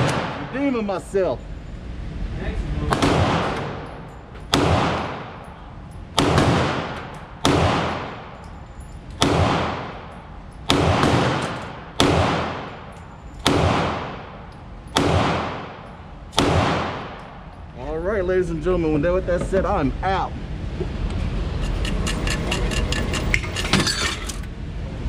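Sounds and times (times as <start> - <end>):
pistol shots with echo: 2.9 - 3.8, 4.5 - 5.4, 6.2 - 8.4, 9.2 - 10.1, 10.7 - 14.4, 15.0 - 17.4.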